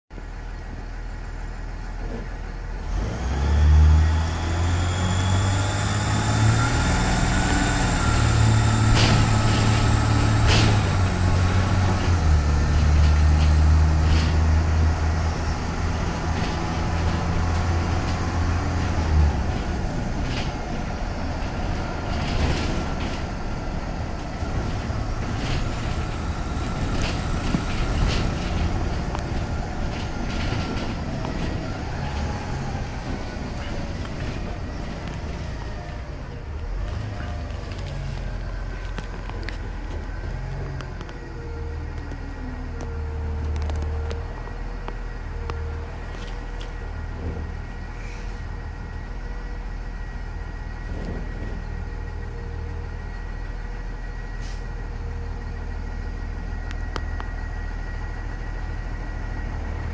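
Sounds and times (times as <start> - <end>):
bus engine accelerating: 0.1 - 59.9
road noise: 0.1 - 59.9
interior clicks and rattles: 7.0 - 41.3.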